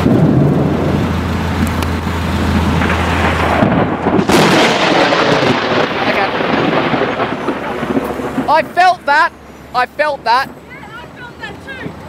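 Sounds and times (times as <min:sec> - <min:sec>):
thunder: 0:00.0 - 0:01.6, 0:02.4 - 0:09.1
sharp crack: 0:00.0 - 0:09.3
rain: 0:00.0 - 0:12.0
wind: 0:00.0 - 0:12.0.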